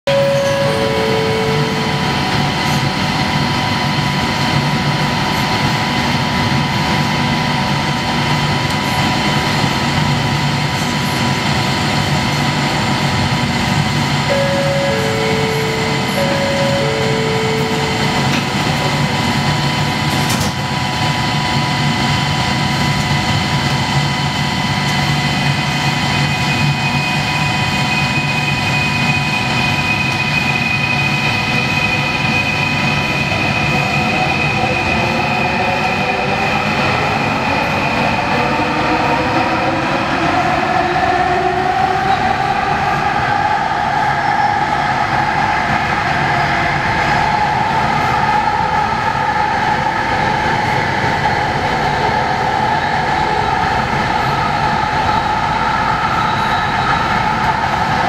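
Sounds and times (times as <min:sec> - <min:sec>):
steady high tone: 0:00.0 - 0:04.8, 0:12.9 - 0:21.8
train car hum: 0:00.0 - 0:58.0
two-note high-low chime: 0:00.1 - 0:03.0, 0:14.3 - 0:19.3.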